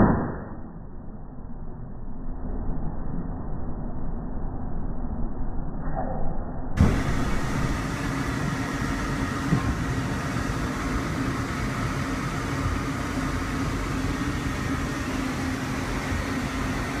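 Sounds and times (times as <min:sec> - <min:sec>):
sharp knock: 0:00.0 - 0:00.6
steady low hum: 0:00.0 - 0:17.0
train rumble and hiss: 0:06.8 - 0:17.0.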